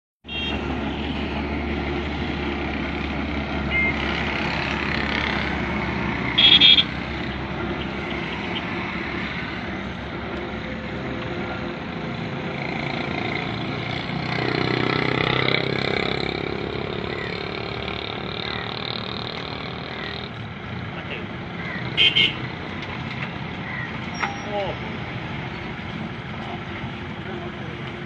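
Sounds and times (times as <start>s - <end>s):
road traffic: 0.2s - 28.0s
vehicle horn toot: 0.3s - 1.1s, 6.4s - 6.9s, 22.0s - 22.4s.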